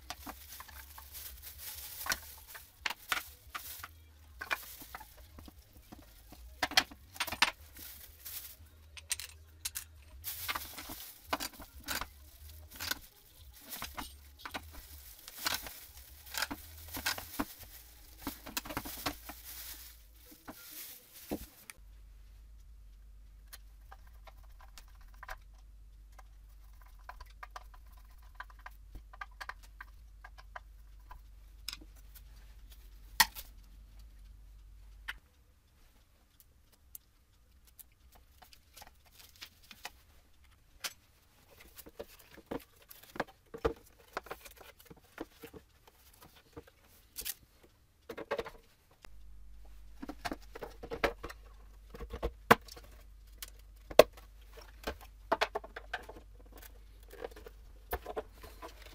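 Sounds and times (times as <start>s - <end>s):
plastic shrouds knocking together: 0.0s - 21.6s
projector seated in plastic housing: 0.0s - 58.9s
low hum: 49.1s - 55.3s.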